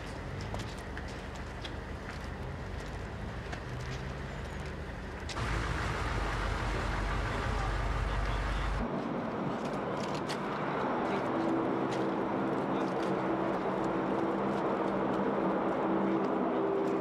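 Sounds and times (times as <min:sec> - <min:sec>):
vehicle engine humming: 0:00.0 - 0:08.9, 0:10.7 - 0:17.0
faint voices: 0:06.6 - 0:08.9.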